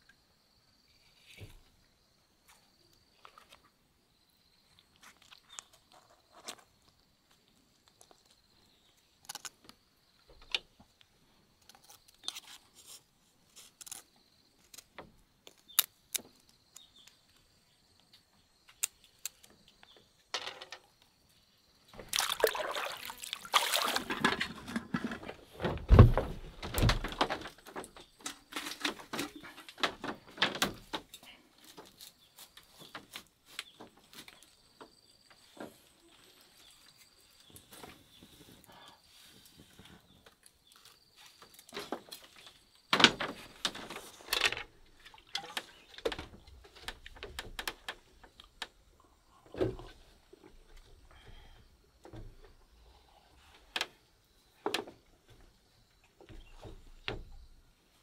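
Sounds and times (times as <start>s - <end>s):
water splashing and pouring: 22.0s - 25.1s.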